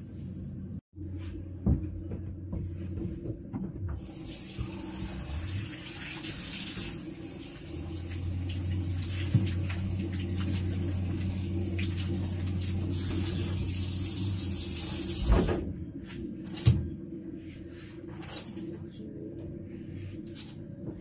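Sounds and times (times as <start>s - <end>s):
tap water running: 3.9s - 15.6s.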